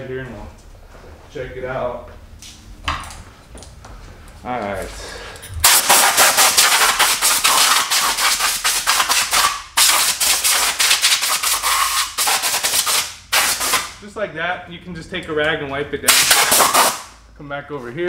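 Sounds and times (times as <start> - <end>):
air blow gun hissing in spurts: 5.6 - 13.9, 16.1 - 17.0.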